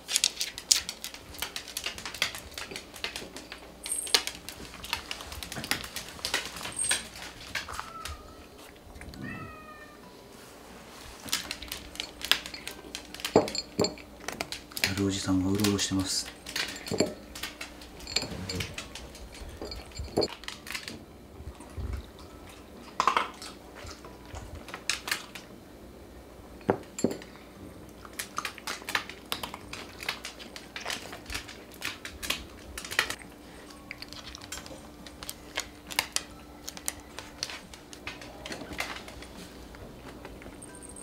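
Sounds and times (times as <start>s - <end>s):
sharp clicks and clinks: 11.3s - 20.6s.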